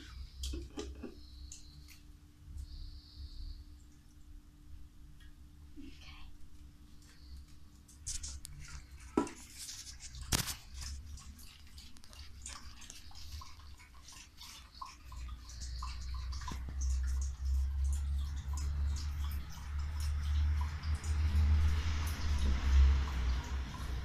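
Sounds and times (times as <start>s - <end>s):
dog lapping from a bowl: 8.2s - 24.0s.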